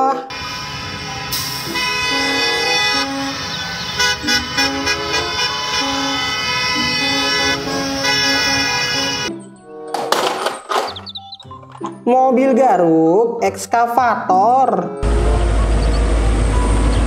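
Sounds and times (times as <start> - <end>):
bus horns honking: 0.0 - 9.5.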